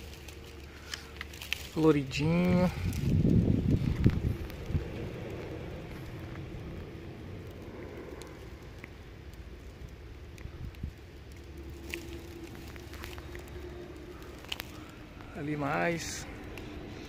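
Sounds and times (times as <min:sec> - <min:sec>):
dry grass rustling and crackling: 0:00.0 - 0:17.0
wind rumble on microphone: 0:00.0 - 0:17.0
faint clicks: 0:03.7 - 0:15.3.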